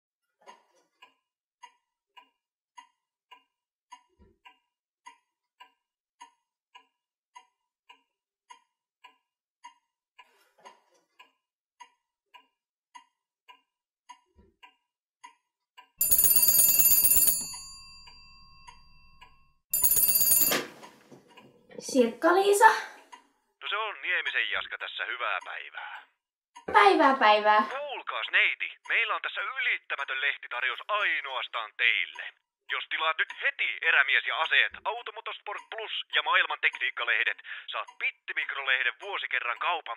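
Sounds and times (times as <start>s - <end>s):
telephone bell ringing: 16.0s - 21.2s.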